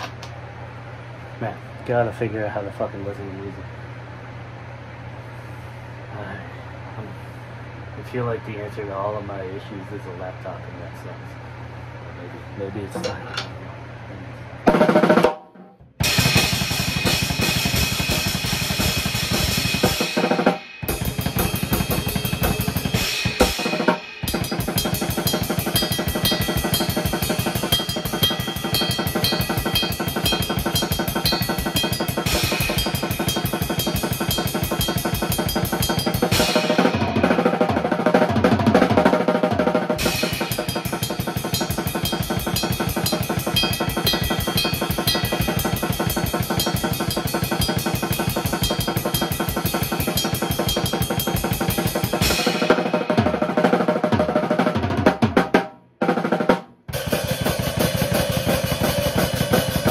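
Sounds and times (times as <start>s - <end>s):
drum kit played fast: 14.7s - 59.9s.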